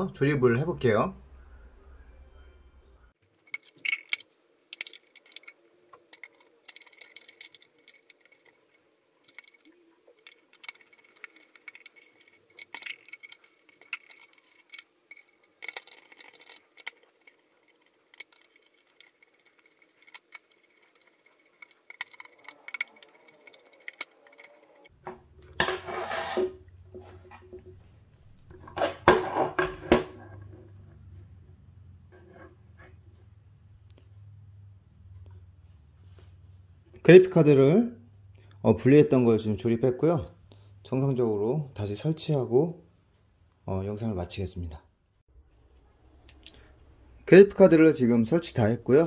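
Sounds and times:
rubbing scraping noise: 25.6 - 27.3.

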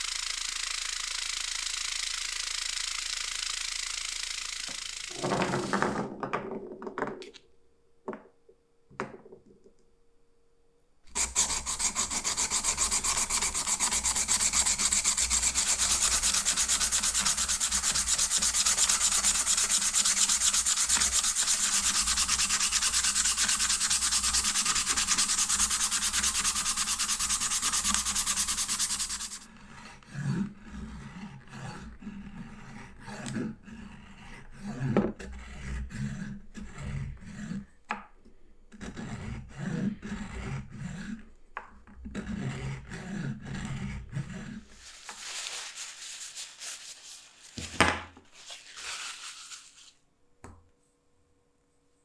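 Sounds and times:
vibratory tumbler running: 0.0 - 5.4, 11.1 - 29.5
hand sanding wood on sandpaper: 11.1 - 29.5, 42.2 - 50.0.

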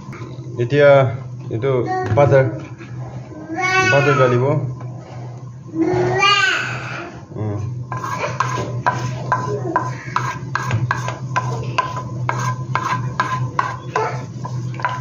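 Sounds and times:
steady low hum: 0.0 - 15.0
spatula scraping frying pan: 7.8 - 15.0
whisk beating batter in plastic bowl: 7.9 - 15.0.

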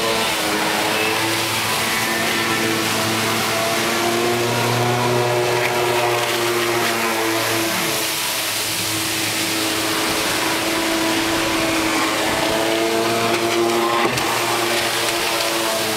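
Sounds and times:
boat engines humming: 0.0 - 15.9
water wash: 0.0 - 15.9
watercraft engine passing by: 0.0 - 15.9.

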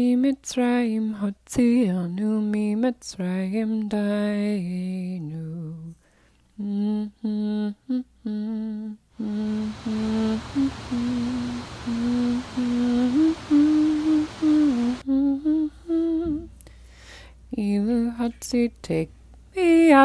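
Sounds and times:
person humming a melody: 6.6 - 16.6
rushing hiss of water: 9.2 - 15.0.

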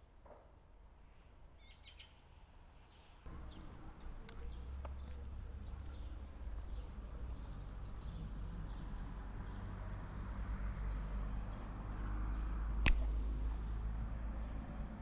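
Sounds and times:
sharp click: 12.8 - 13.1.

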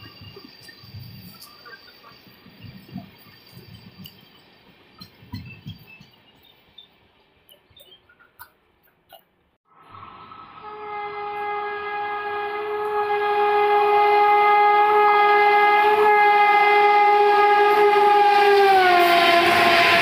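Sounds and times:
locomotive horn blast: 10.3 - 20.0.

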